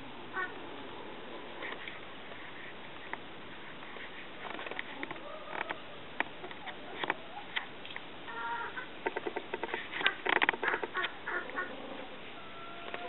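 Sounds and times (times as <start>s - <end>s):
steady hiss: 0.0s - 13.0s
turkeys clicking: 4.4s - 13.0s
faint chirpy turkey calls: 8.3s - 8.9s, 10.0s - 13.0s.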